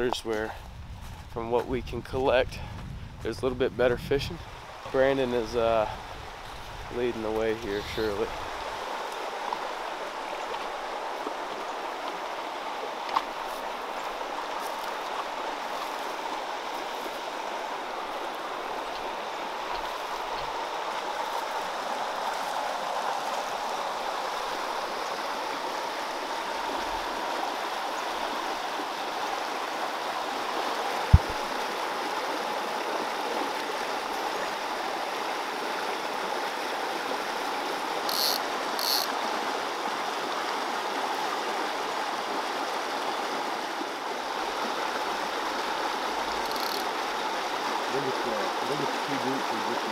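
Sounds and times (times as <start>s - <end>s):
stream running over rocks: 3.9s - 49.9s
brief thump: 31.1s - 31.4s.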